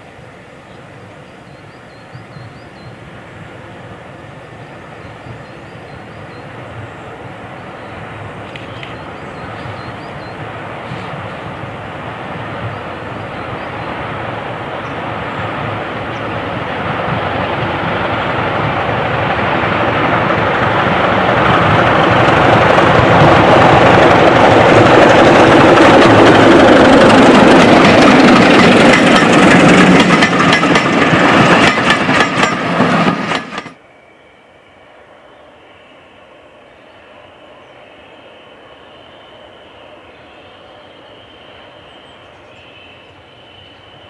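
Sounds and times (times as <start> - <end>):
diesel locomotive engine: 0.0 - 44.0
train wheels clicking over rail joints: 14.8 - 33.8.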